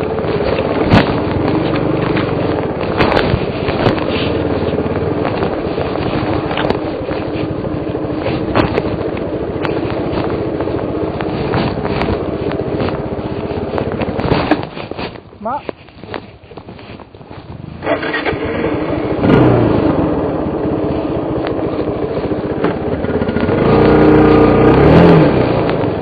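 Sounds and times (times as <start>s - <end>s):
bike knocking over bumps: 0.0s - 17.2s
motorcycle engine running: 0.0s - 26.0s.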